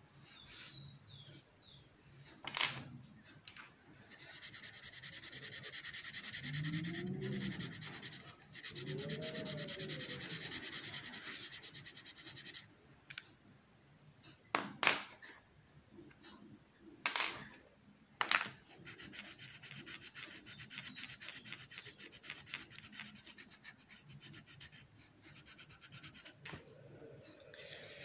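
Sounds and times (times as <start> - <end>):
pencil scratching on paper: 4.0 - 12.7, 18.7 - 26.6.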